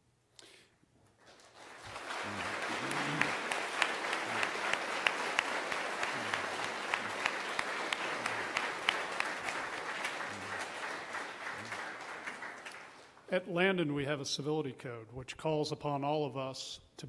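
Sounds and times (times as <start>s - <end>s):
audience clapping: 1.2s - 13.3s.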